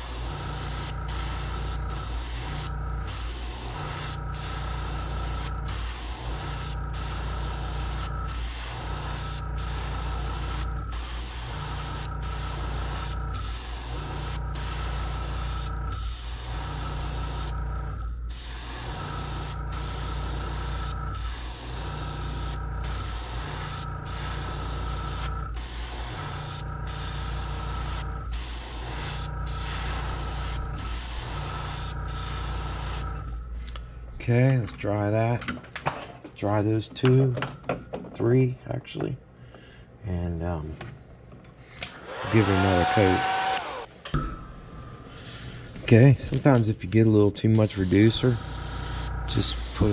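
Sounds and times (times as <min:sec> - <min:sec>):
airbrush spraying hiss: 0:00.0 - 0:17.5, 0:18.3 - 0:33.1, 0:47.5 - 0:49.9
steady low hum: 0:00.0 - 0:41.8, 0:43.6 - 0:49.9.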